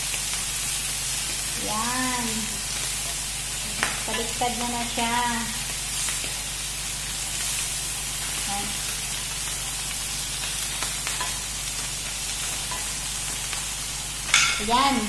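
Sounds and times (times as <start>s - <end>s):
fish sizzling in oil: 0.0s - 15.0s
wooden spatula tapping pan: 14.3s - 14.8s.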